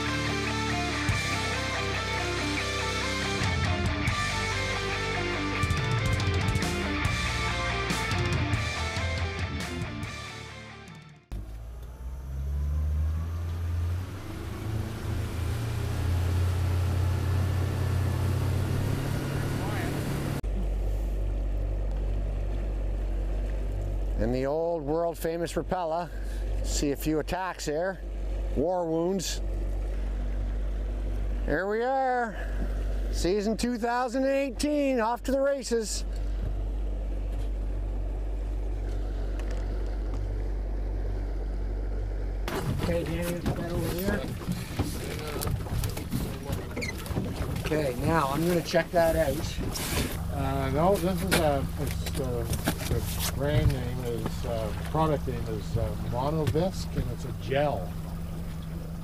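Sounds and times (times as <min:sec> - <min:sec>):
outboard motor droning: 0:00.0 - 0:09.2, 0:11.3 - 0:59.0.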